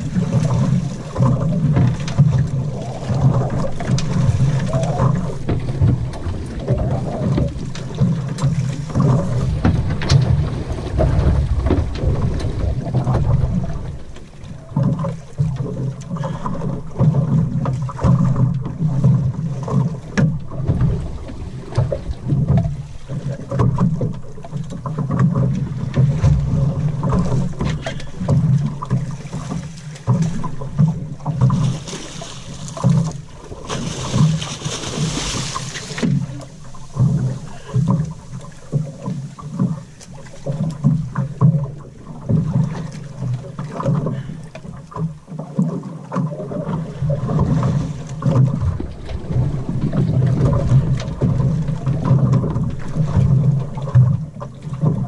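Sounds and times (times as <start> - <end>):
wind buffeting microphone: 0.0 - 14.4, 47.4 - 54.3
water slapping against boat hull: 0.0 - 55.0
fish splashing at surface: 31.4 - 37.9.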